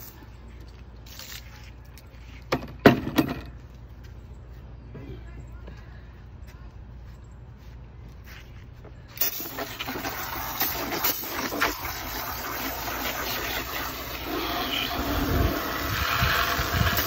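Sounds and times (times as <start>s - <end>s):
hose nozzle spraying water: 9.2s - 17.0s.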